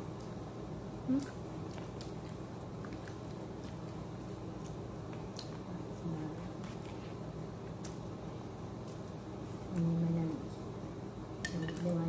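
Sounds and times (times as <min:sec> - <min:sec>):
steady low hum: 0:00.0 - 0:12.0
quiet chewing: 0:01.1 - 0:08.1.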